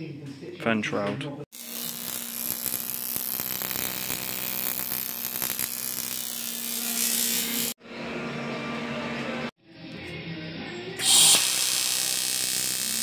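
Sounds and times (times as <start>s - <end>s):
welder arc buzzing: 1.5s - 7.8s, 11.0s - 13.0s.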